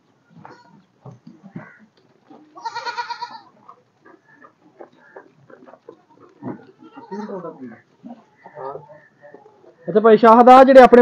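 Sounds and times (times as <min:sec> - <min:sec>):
knocks and shuffling in pen: 0:00.2 - 0:02.6, 0:03.4 - 0:08.5
goat bleating: 0:00.3 - 0:09.8.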